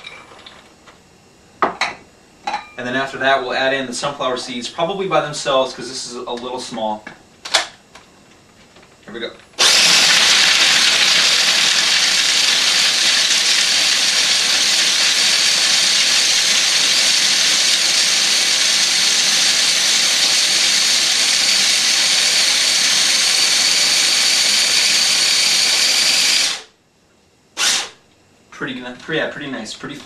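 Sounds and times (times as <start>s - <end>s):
food processor motor running: 9.6s - 26.7s.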